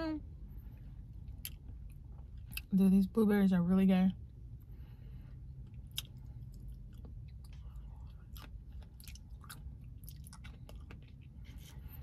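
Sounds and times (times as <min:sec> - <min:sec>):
steady low hum: 0:00.0 - 0:12.0
chewing fruit wet smacks: 0:01.2 - 0:02.7, 0:05.6 - 0:11.8.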